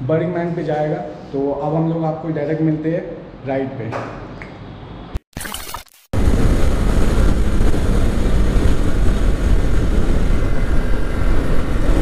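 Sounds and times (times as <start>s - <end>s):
motorcycle engine: 6.2s - 12.0s
wind buffeting microphone: 6.2s - 12.0s.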